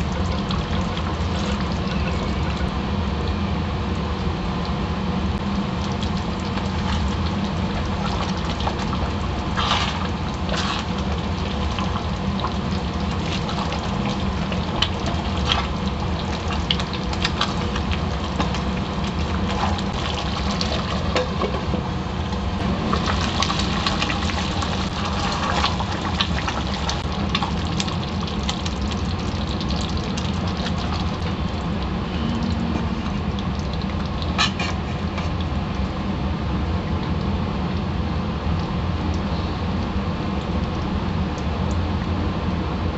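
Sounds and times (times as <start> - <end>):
gravy simmering and bubbling: 0.0 - 42.1
gas stove rush: 6.4 - 27.6.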